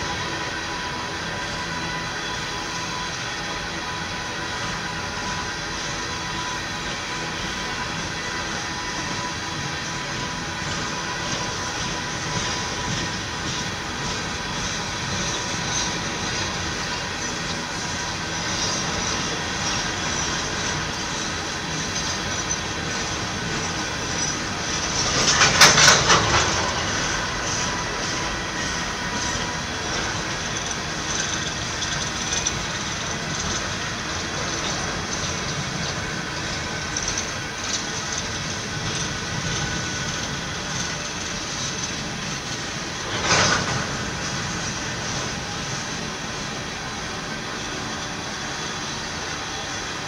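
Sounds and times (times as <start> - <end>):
freight train wheels rumbling: 0.0 - 50.0
thin wheel squealing: 0.0 - 50.0.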